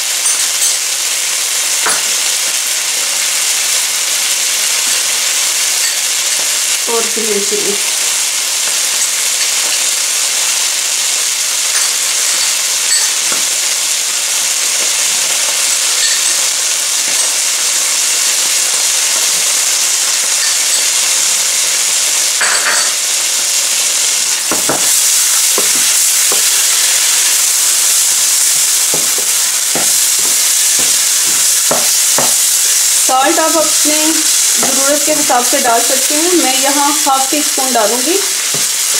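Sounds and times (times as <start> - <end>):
chili sizzling in hot oil: 0.0 - 38.9.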